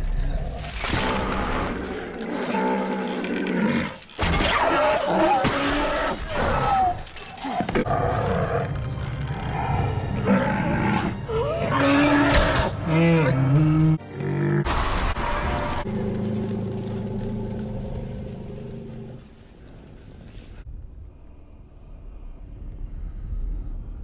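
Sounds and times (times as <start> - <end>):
creatures roaring and shrieking: 0.6 - 15.9.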